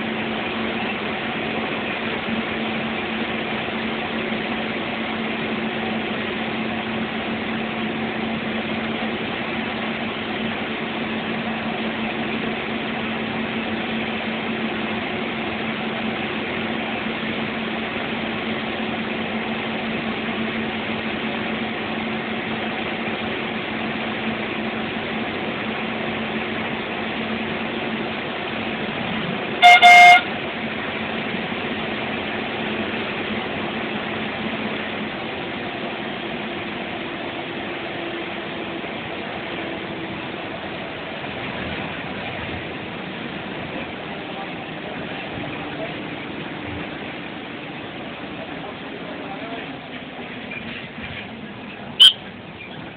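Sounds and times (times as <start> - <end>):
bus engine and road noise: 0.0 - 52.9
horn honking: 29.6 - 30.4, 52.0 - 52.3.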